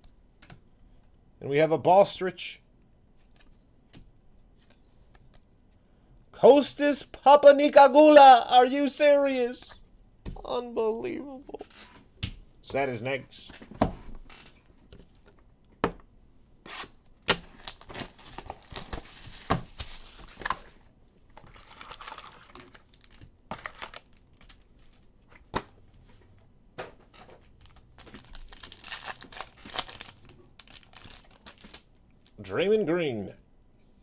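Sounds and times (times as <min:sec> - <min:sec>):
foil packs crinkling and tearing: 0:17.4 - 0:20.7, 0:21.4 - 0:24.7, 0:27.4 - 0:32.4.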